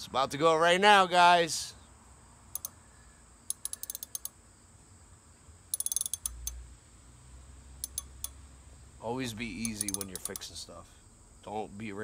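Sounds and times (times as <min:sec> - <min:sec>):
socket ratchet clicking: 0:02.5 - 0:02.8, 0:03.5 - 0:04.4, 0:05.7 - 0:06.6, 0:07.8 - 0:08.4, 0:09.6 - 0:10.6.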